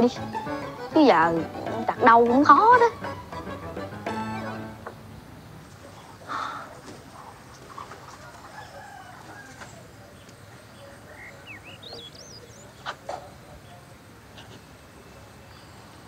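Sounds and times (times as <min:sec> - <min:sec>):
chickens clucking: 0:05.7 - 0:13.6
rooster crowing: 0:08.1 - 0:10.0
high bird chirps: 0:10.8 - 0:12.9.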